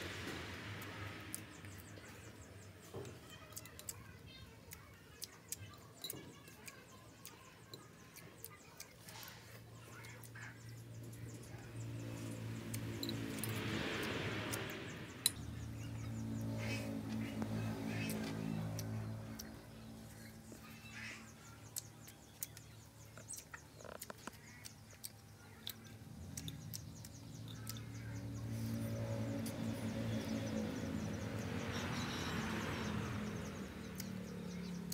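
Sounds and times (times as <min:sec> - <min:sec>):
faint bird chirps: 0:15.1 - 0:34.9.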